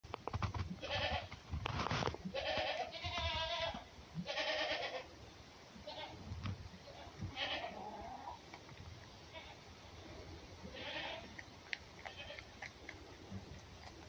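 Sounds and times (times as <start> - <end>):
baby goat bleating: 0.8 - 1.3, 2.3 - 5.1, 6.9 - 8.4, 10.7 - 11.4, 12.0 - 12.5.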